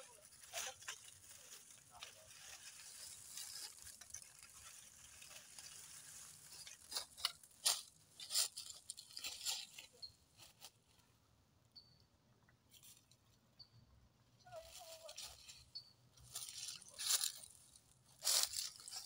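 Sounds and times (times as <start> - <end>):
footsteps crunching dry leaves: 0.0 - 10.8, 16.2 - 19.0.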